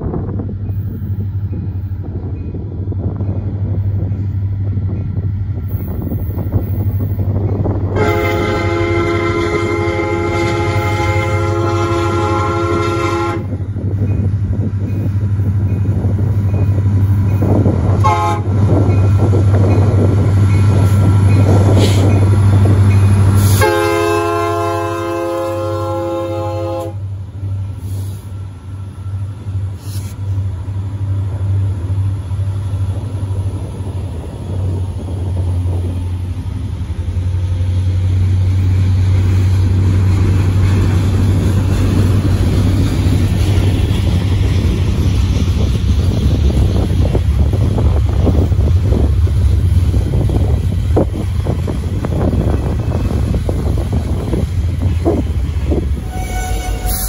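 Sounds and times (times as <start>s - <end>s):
diesel locomotive engines humming: 0.0s - 57.0s
train horn blast: 7.9s - 13.6s, 18.0s - 18.7s, 23.4s - 27.1s, 56.0s - 57.0s
train wheels clattering: 13.8s - 25.8s, 34.1s - 57.0s.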